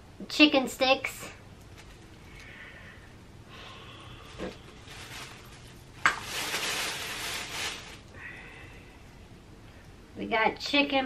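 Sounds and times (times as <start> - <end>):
plastic bag crinkling: 1.6 - 2.5, 4.2 - 8.1.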